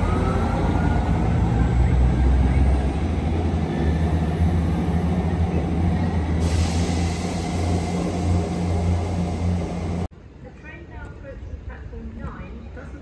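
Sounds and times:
diesel train engine droning: 0:00.0 - 0:10.4.

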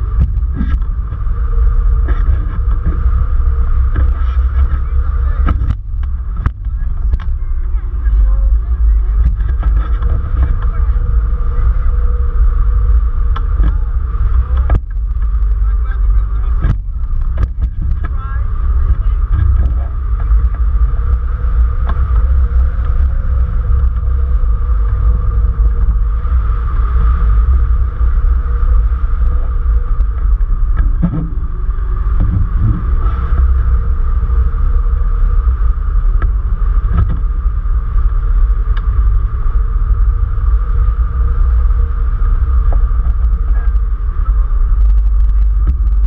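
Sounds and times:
wind buffeting microphone: 0:00.0 - 0:46.0.

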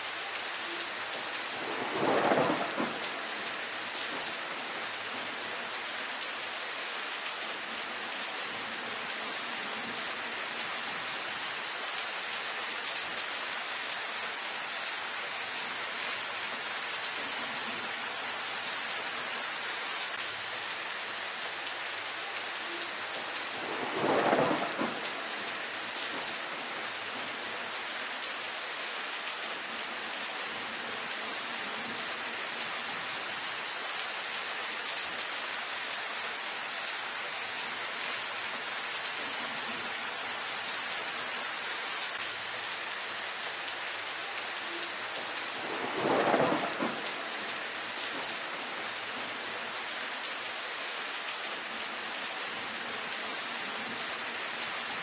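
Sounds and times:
rain on foliage: 0:00.0 - 0:55.0
louder swell over rain: 0:23.5 - 0:26.3, 0:44.7 - 0:48.3.

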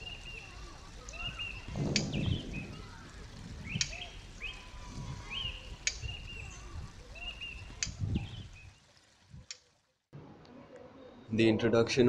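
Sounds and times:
low rumble: 0:00.8 - 0:08.5
sharp clicks: 0:01.0 - 0:02.7, 0:03.6 - 0:04.6, 0:05.6 - 0:06.6, 0:07.6 - 0:08.0.

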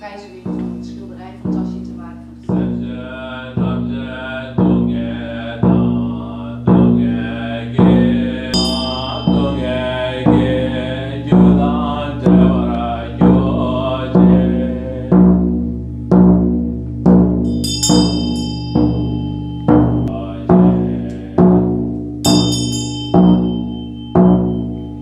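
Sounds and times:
ritual drum beats: 0:00.0 - 0:25.0
deep chanted mantra: 0:02.5 - 0:15.8, 0:20.1 - 0:22.5
hand bell ringing: 0:08.5 - 0:11.9, 0:17.4 - 0:20.2, 0:22.2 - 0:25.0.

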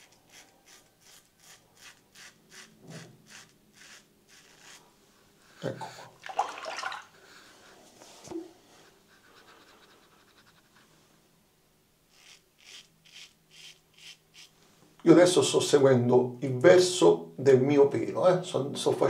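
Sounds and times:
razor scraping stubble: 0:00.0 - 0:04.9, 0:12.1 - 0:14.5
water splash: 0:06.2 - 0:07.1.

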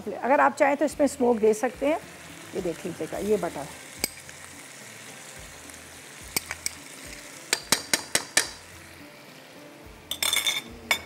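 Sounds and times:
food sizzling in a pan: 0:00.0 - 0:11.0
metal spoon clinking on pan: 0:07.5 - 0:08.6, 0:10.1 - 0:11.0.

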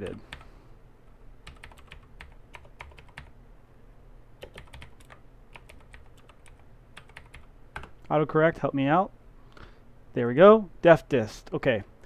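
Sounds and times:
typing on a computer keyboard: 0:01.4 - 0:03.3, 0:04.4 - 0:08.0.

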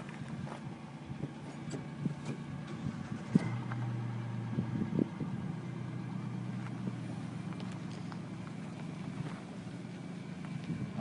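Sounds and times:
footsteps on gravel: 0:00.0 - 0:00.7, 0:06.6 - 0:10.8
truck engine idling: 0:00.0 - 0:11.0.

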